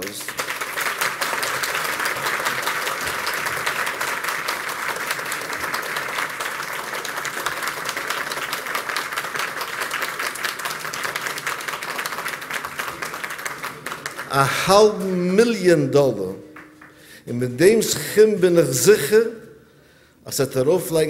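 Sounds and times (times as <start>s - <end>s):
large crowd applauding: 0.0s - 15.6s, 16.5s - 17.2s.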